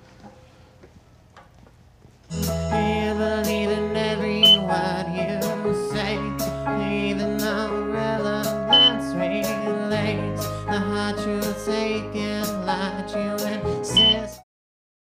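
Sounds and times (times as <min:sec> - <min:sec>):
man singing: 0:02.4 - 0:14.4
smoke detector beeps: 0:04.4 - 0:04.6, 0:08.7 - 0:09.0, 0:14.0 - 0:14.3.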